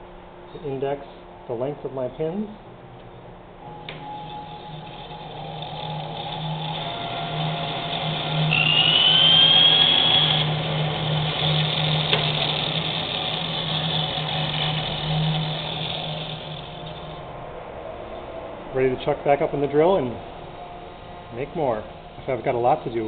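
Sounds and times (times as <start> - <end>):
bandsaw cutting wood: 4.1 - 17.2.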